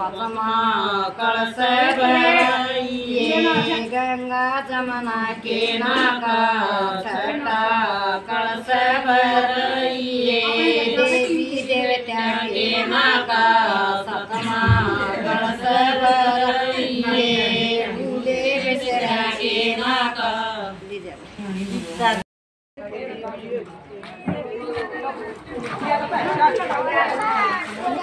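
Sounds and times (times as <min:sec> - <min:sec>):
women singing folk song: 0:00.0 - 0:20.9.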